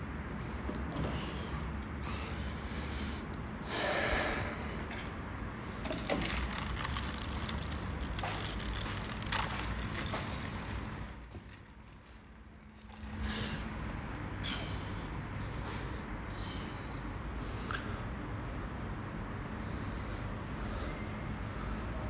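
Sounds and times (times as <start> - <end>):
person breathing close to microphone: 1.1 - 5.0
phone handling rustle: 5.8 - 13.2.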